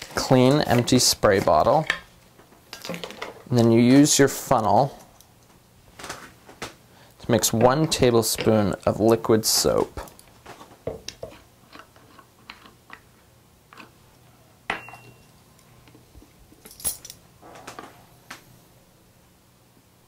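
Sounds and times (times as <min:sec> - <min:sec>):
metal spoon and bottles clinking: 0:14.7 - 0:15.3
ringing metal clink: 0:14.7 - 0:15.3.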